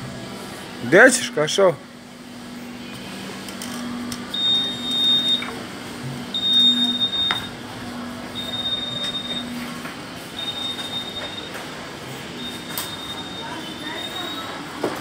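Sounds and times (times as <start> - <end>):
electronic alarm beeping: 3.9 - 5.6, 6.2 - 14.7.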